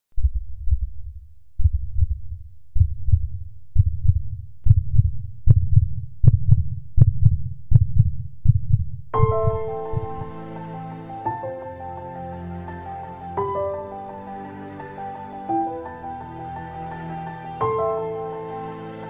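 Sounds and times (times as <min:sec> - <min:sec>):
heartbeat-like low thumps: 0:00.2 - 0:10.5.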